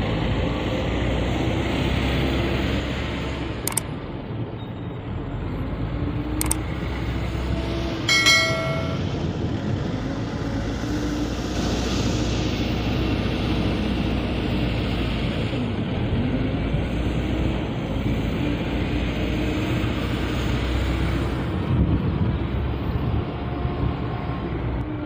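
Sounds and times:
heavy diesel engines rumbling: 0.0 - 25.0
sharp click: 3.7 - 3.9, 6.4 - 6.6
short high tone: 8.1 - 9.1.

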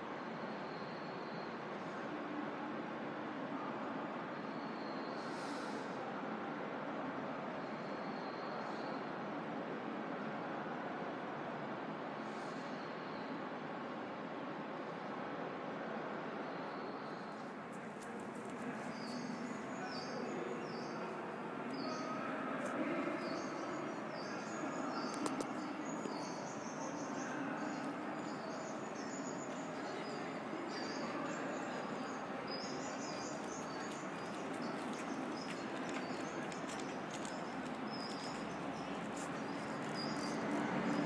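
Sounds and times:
city background hum: 11.5 - 41.0
recorded bird chirps: 16.5 - 41.0.

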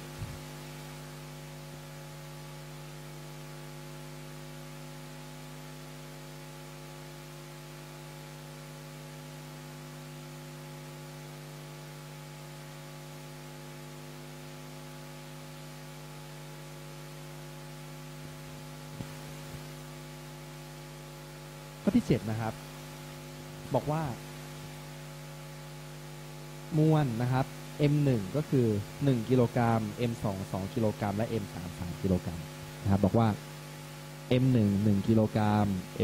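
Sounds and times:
electrical mains hum: 0.0 - 36.0
background hiss: 15.8 - 36.0.

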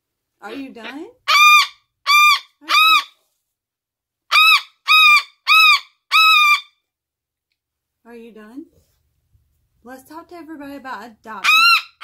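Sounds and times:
cockatoo screaming: 0.5 - 3.2, 4.3 - 6.7, 11.4 - 12.0.

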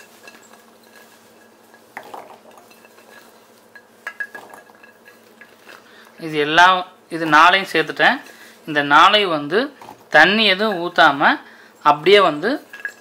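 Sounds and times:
garlic clinking against steel jar: 0.0 - 5.9, 12.3 - 13.0.

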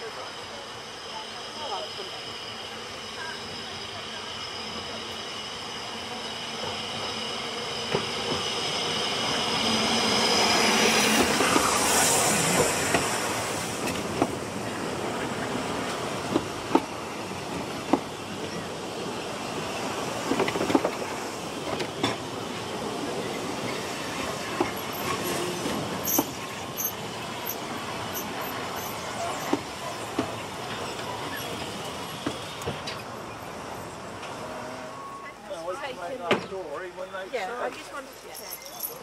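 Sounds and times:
railway carriages rumbling: 0.0 - 39.0
high wheel squeals: 0.2 - 13.5, 23.2 - 35.6.

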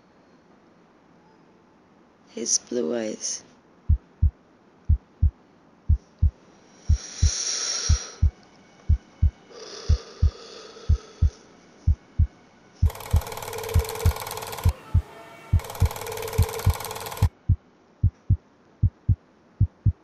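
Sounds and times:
heartbeat double thump: 3.9 - 10.3, 10.9 - 13.3, 17.2 - 20.0
soft hissing swells: 6.4 - 12.8
harsh buzzing static: 12.8 - 17.4.

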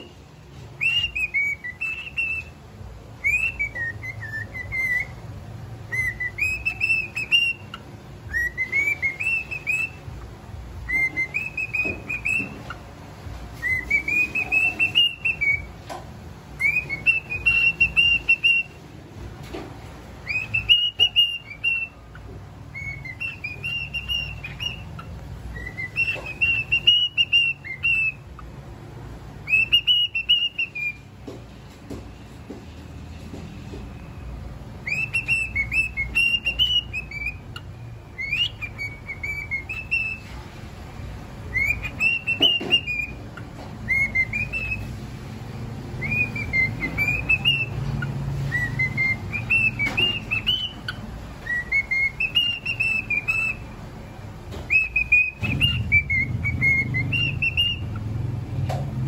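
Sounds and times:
cockatiel whistling a song: 0.0 - 31.2, 33.7 - 59.0.

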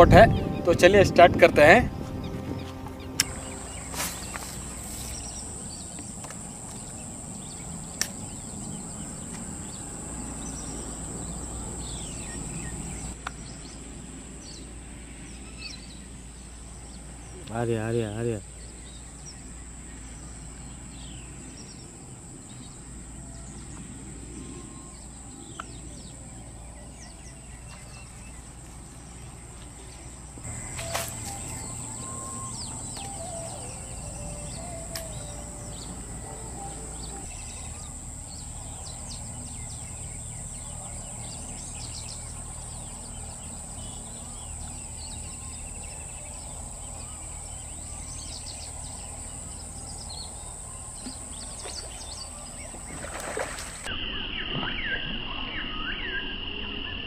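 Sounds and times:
steady high-pitched drone: 0.0 - 13.2, 30.4 - 53.0
birds chirping and calling: 0.0 - 13.8, 30.4 - 53.9
low wind rumble: 0.0 - 54.0.

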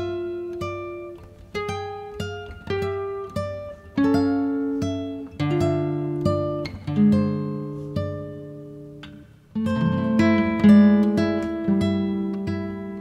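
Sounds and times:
plucked string instrument melody: 0.0 - 13.0.

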